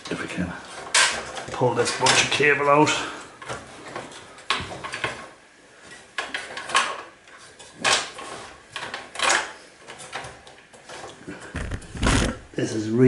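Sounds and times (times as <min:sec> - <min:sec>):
cables scraping on metal case: 0:09.9 - 0:12.5.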